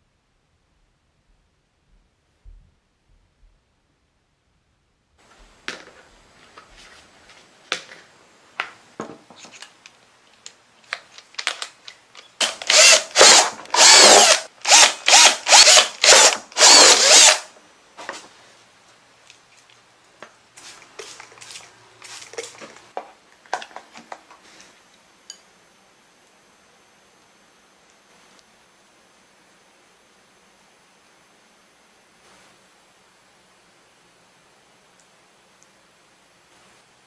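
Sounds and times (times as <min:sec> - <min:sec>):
cordless drill boring plastic: 0:12.2 - 0:17.5.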